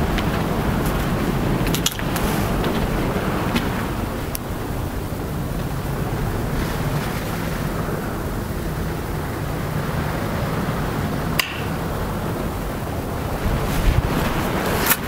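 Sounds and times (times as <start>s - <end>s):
sea surf: 0.0s - 15.0s
wind rushing: 0.0s - 15.0s
sharp click: 11.4s - 11.7s.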